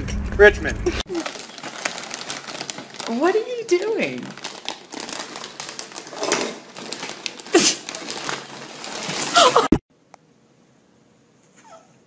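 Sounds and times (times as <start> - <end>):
plastic bag crinkling: 1.1 - 9.7.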